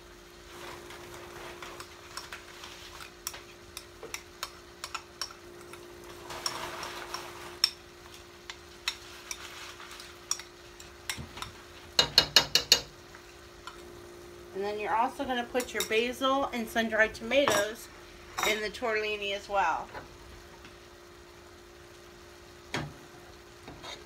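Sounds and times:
shrimp sizzling in a skillet: 0:00.0 - 0:24.0
utensil scraping a metal pot: 0:04.4 - 0:07.8, 0:23.7 - 0:24.0
faint hum: 0:12.8 - 0:24.0.

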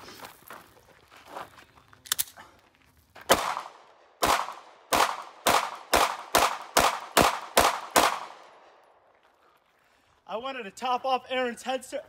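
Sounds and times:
pistol shots with echo: 0:03.3 - 0:08.7.

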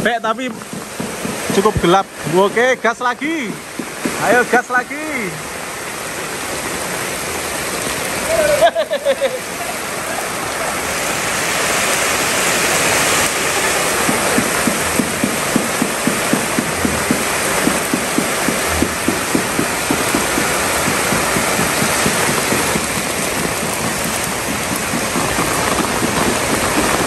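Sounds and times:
heavy rain on paving and roofs: 0:00.0 - 0:27.0
quick regular tapping: 0:00.4 - 0:01.9, 0:14.1 - 0:27.0.

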